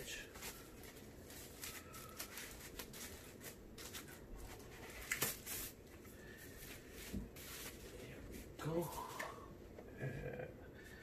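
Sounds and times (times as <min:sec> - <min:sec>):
plastic wrap rustling and scratching: 0:00.0 - 0:08.8.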